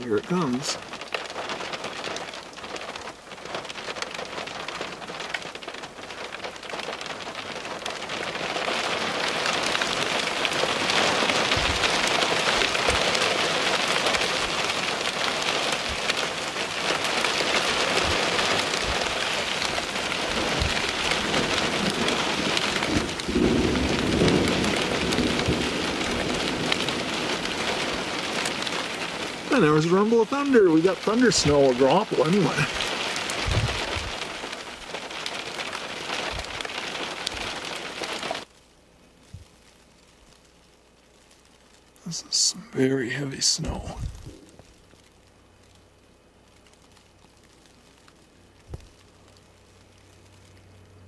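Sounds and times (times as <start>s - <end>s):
thunder rumble: 0.0s - 38.4s, 43.6s - 44.8s
heavy precipitation pattering: 0.0s - 51.0s.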